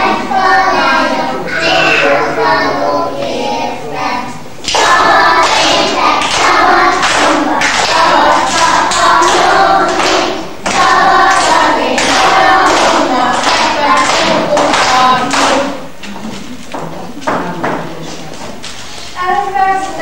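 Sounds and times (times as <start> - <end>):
young children singing: 0.0 - 16.5
clapping and thuds: 4.7 - 15.7.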